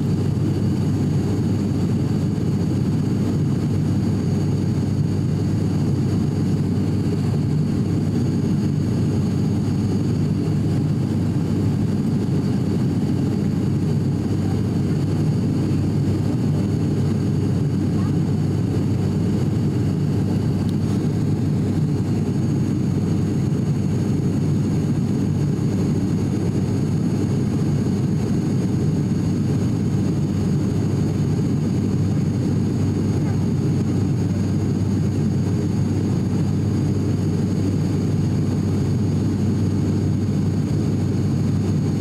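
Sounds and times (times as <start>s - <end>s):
turboprop engines droning: 0.0s - 42.0s.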